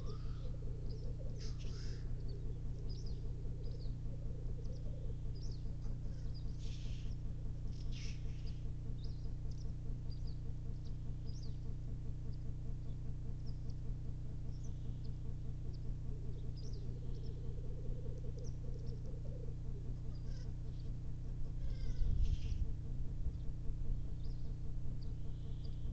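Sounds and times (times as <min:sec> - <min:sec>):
grouse bubbling coo chorus: 0:00.0 - 0:06.4, 0:15.9 - 0:20.7
grouse hissing call: 0:00.0 - 0:07.1, 0:16.8 - 0:20.7, 0:21.6 - 0:22.7
small birds chirping: 0:00.0 - 0:25.9.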